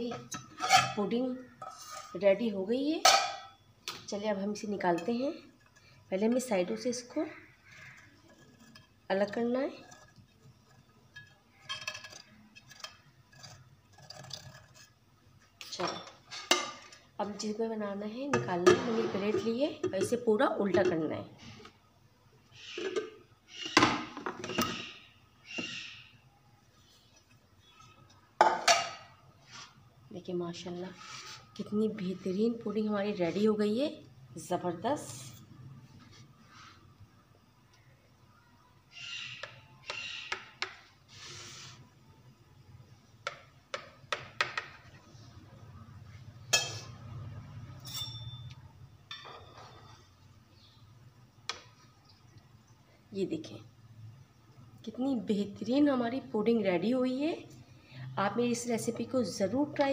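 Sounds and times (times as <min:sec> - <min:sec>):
cake server scraping a plate: 0:00.6 - 0:01.0
ringing clink on a plate: 0:47.8 - 0:49.5.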